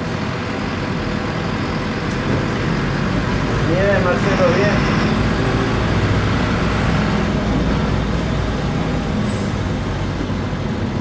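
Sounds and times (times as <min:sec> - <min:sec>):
bus diesel engine running: 0:00.0 - 0:11.0
road noise: 0:00.0 - 0:11.0.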